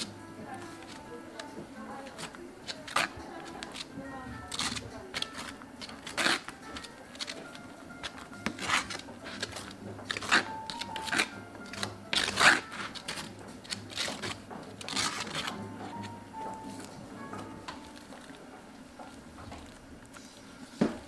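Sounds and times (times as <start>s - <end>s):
spatula swishing spread on crepe: 0.0s - 17.1s.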